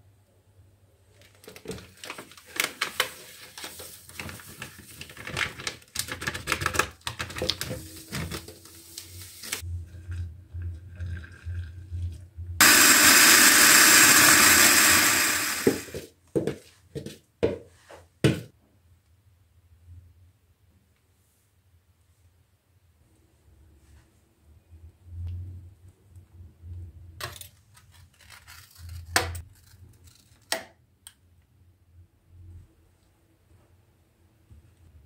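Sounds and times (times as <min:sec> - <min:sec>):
milk pouring into jug: 0:10.0 - 0:12.2
electric mixer running: 0:12.6 - 0:16.0.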